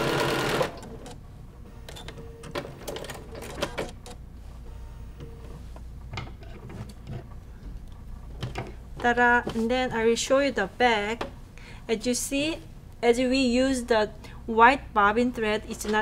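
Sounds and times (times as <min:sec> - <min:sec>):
sewing machine stitching: 0:00.0 - 0:01.2.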